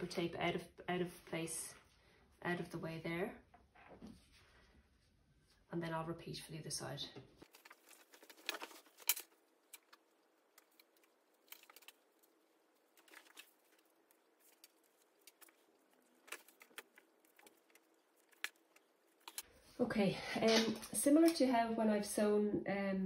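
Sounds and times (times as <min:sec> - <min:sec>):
fabric rustling: 0:07.4 - 0:19.4.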